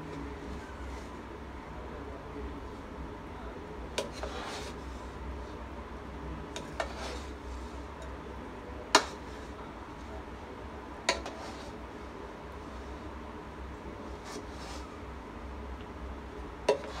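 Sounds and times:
rice rustling: 4.0s - 5.6s, 6.6s - 8.0s, 11.0s - 13.2s, 13.9s - 15.0s, 16.7s - 17.0s.

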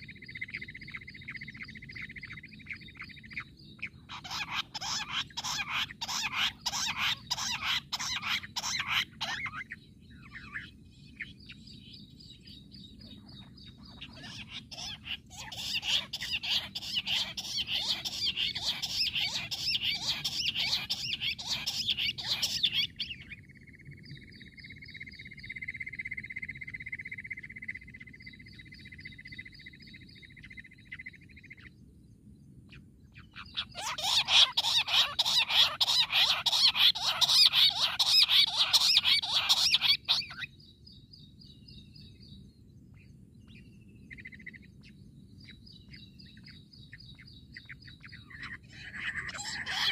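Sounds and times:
quails chattering calls: 0.0s - 11.6s, 13.0s - 23.8s, 33.2s - 40.5s, 46.4s - 49.9s.

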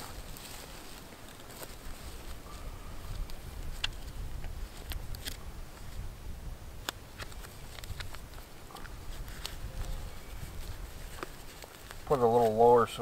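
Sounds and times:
paper tag rustling and clicking: 3.1s - 5.4s, 6.8s - 12.6s.

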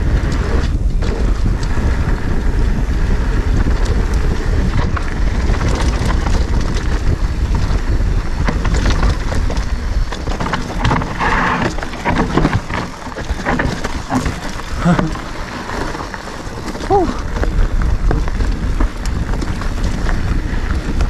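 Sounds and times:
bike knocking and rattling: 0.0s - 21.0s
wind rumbling over microphone: 0.0s - 21.0s.

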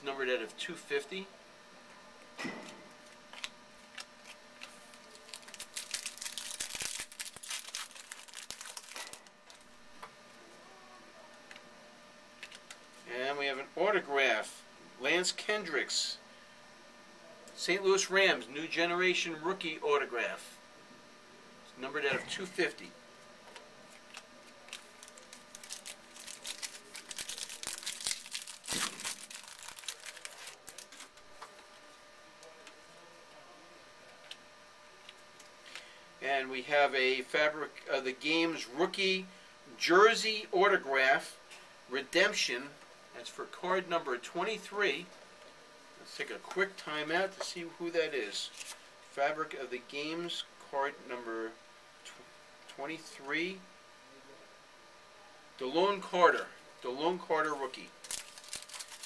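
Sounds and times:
wrapper tearing and crinkling: 3.4s - 9.6s, 24.1s - 31.2s, 58.0s - 59.0s.

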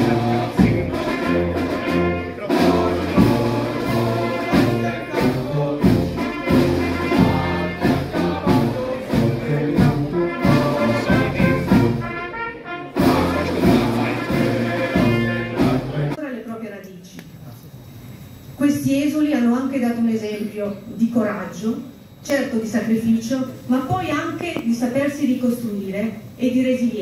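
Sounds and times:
drum beats: 0.0s - 16.2s
held brass notes: 0.0s - 16.2s.

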